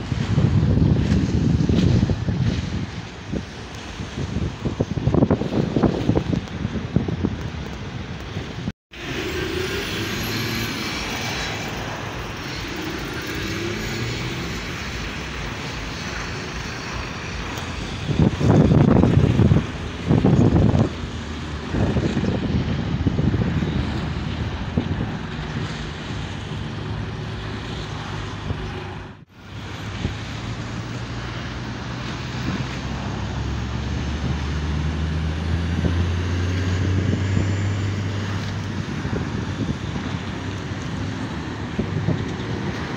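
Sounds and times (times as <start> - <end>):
traffic engine and tyre noise: 0.0 - 42.9
loud rushes of noise: 7.3 - 42.9
truck diesel drone passing: 8.9 - 42.9.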